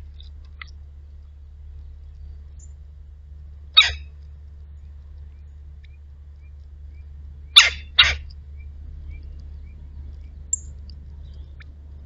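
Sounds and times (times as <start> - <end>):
faint high bird chip: 3.8 - 4.0.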